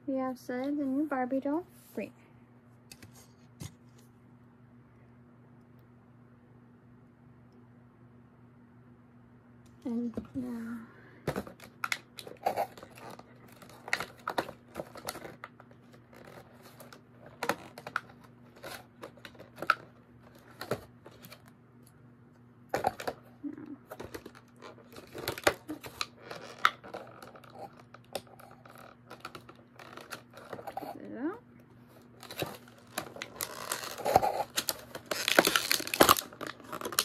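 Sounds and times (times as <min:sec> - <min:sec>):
faint low hum: 0:00.0 - 0:37.0.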